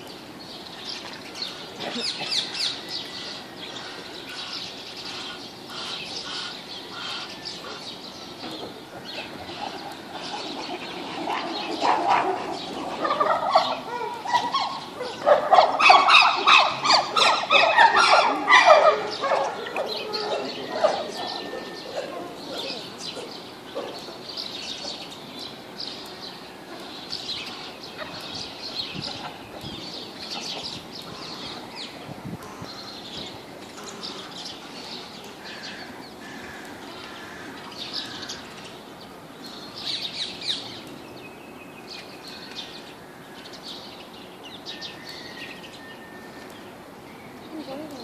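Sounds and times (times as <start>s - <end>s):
faint outdoor background noise: 0.0s - 48.0s
small birds chirping: 0.0s - 48.0s.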